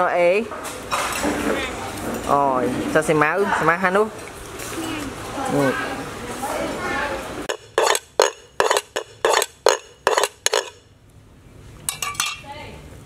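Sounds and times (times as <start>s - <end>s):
cleaver chopping on wooden block: 7.5s - 10.8s.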